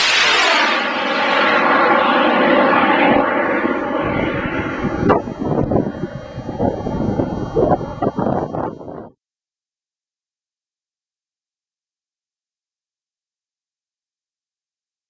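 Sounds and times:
rocket motor roaring: 0:00.0 - 0:09.1
wind buffeting microphone: 0:03.1 - 0:09.1.

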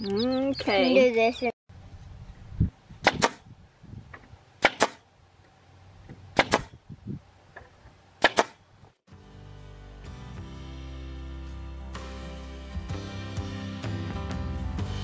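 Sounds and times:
nail gun firing into plywood: 0:03.0 - 0:03.4, 0:04.6 - 0:05.0, 0:06.4 - 0:06.8, 0:08.2 - 0:08.6
music: 0:09.1 - 0:15.0.

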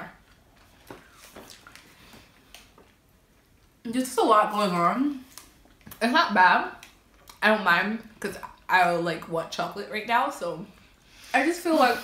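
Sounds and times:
faint chewing: 0:00.2 - 0:03.8, 0:06.8 - 0:07.4.

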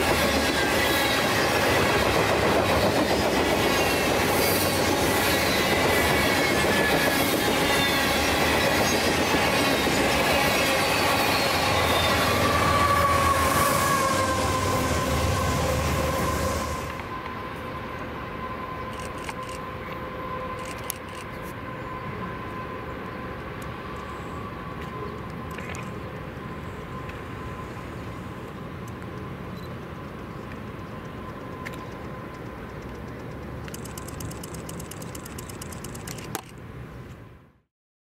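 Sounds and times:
freight train rumble: 0:00.0 - 0:37.3
fast even ticking: 0:32.8 - 0:36.4.

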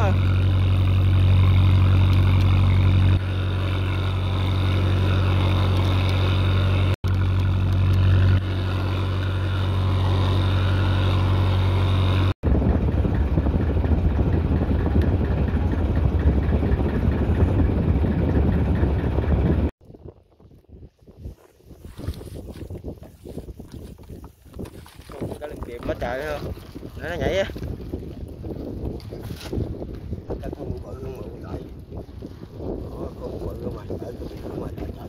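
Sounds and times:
boat engine running: 0:00.0 - 0:19.7, 0:22.7 - 0:35.0
wind noise on microphone: 0:11.1 - 0:35.0.

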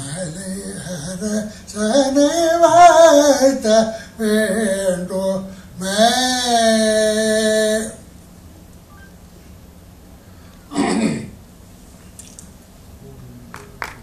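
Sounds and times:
person singing a melody: 0:00.0 - 0:08.0.

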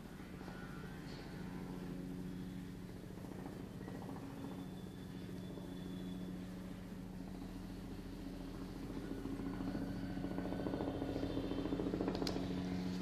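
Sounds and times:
low mechanical hum with flutter: 0:00.0 - 0:13.0
sharp clicks: 0:12.0 - 0:12.5.

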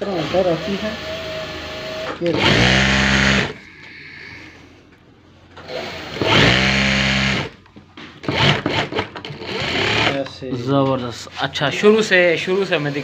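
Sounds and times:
electric sewing machine stitching: 0:00.0 - 0:03.6, 0:05.6 - 0:07.6, 0:08.2 - 0:10.2.

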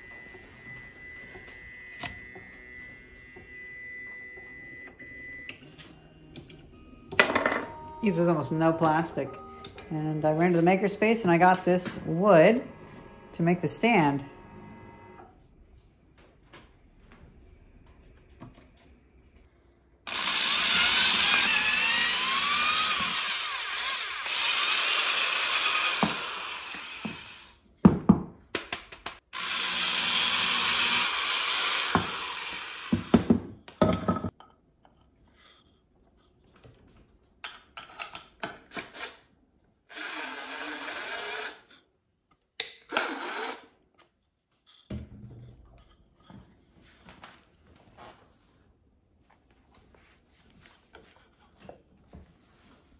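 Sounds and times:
drill clicks: 0:20.1 - 0:27.5
electric drill boring through wood: 0:20.1 - 0:27.6, 0:29.3 - 0:33.3, 0:39.8 - 0:41.8, 0:42.9 - 0:43.7.

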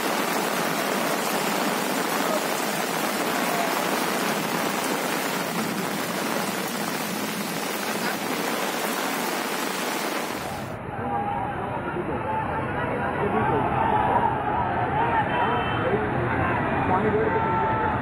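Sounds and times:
heavy rain on standing water: 0:00.0 - 0:10.8.

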